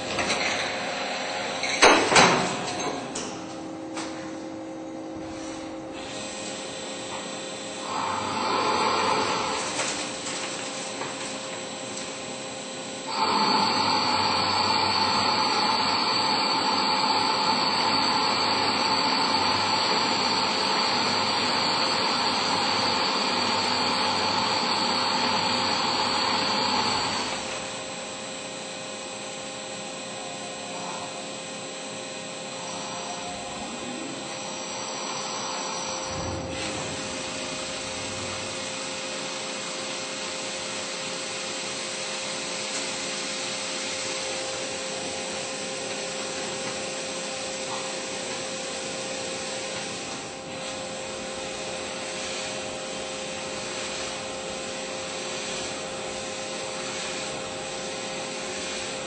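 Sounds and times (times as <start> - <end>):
machine hum: 0.0 - 58.4
lathe cutting metal whine: 6.2 - 9.9, 11.7 - 48.2.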